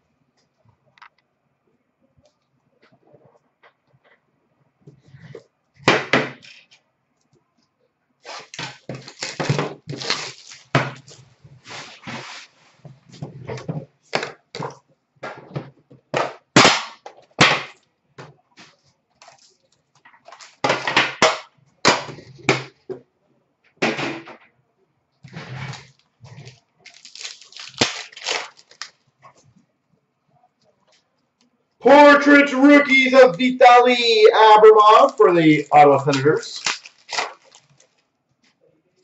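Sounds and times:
wrapper crinkling: 0:08.3 - 0:11.2, 0:25.7 - 0:29.1, 0:36.4 - 0:38.1.

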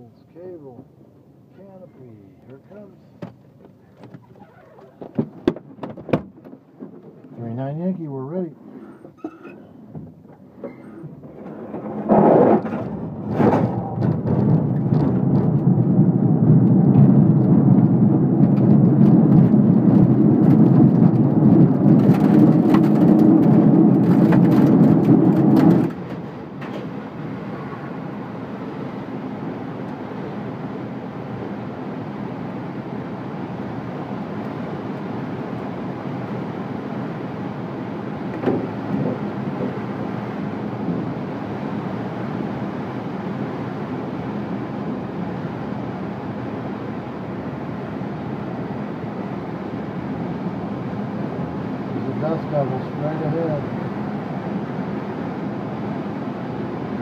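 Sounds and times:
airframe and wheels rumbling: 0:02.5 - 0:31.7, 0:37.6 - 0:43.1
air rushing over canopy: 0:11.1 - 0:57.0.

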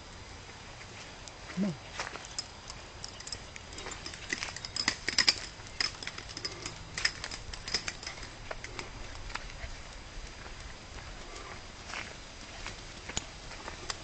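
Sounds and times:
footsteps crunching on leaves: 0:08.2 - 0:13.9.

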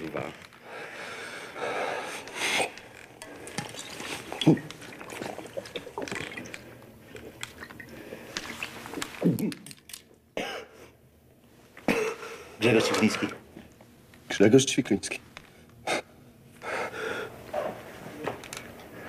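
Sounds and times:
liquid pouring and splashing: 0:03.2 - 0:09.2.

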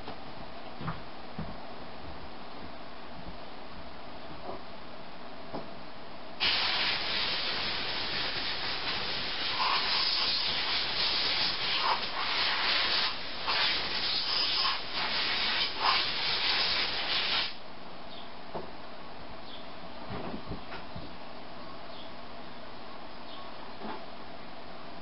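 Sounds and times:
compressed air hissing: 0:06.4 - 0:17.6.

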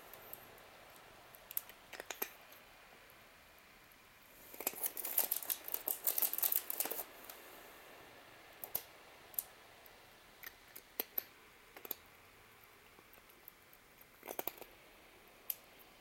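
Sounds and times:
cat crunching dry kibble: 0:01.5 - 0:02.4, 0:04.4 - 0:07.1, 0:13.2 - 0:14.7.

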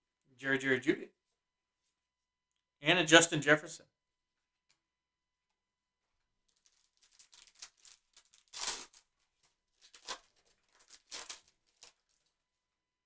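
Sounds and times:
foil pack crinkling and tearing: 0:06.5 - 0:12.3.

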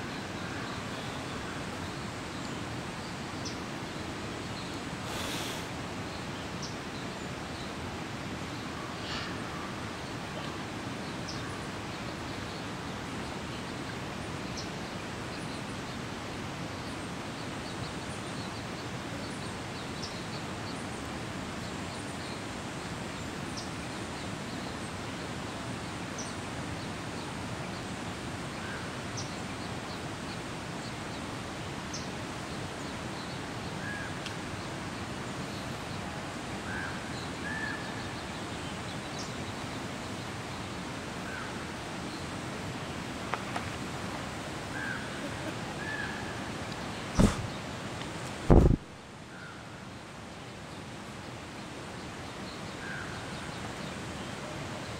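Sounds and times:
outdoor background noise: 0:00.0 - 0:54.9.

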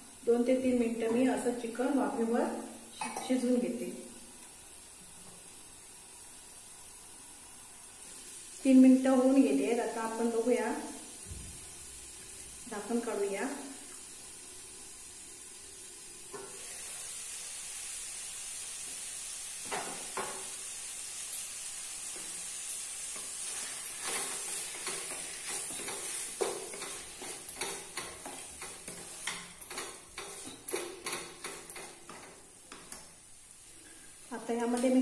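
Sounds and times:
chicken sizzling in a pan: 0:00.0 - 0:35.0
wooden spatula scraping a pan: 0:23.1 - 0:32.8.

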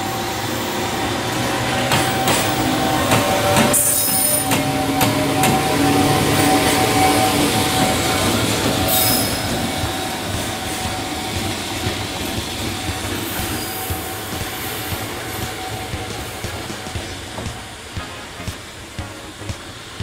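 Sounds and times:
steel wheels squealing: 0:00.0 - 0:17.8
freight train rolling on rails: 0:00.0 - 0:20.0.

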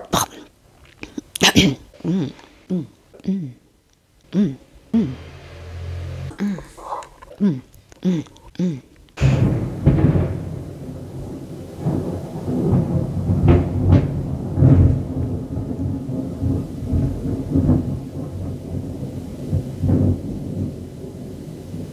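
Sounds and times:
thunder rumbling: 0:09.2 - 0:21.9.

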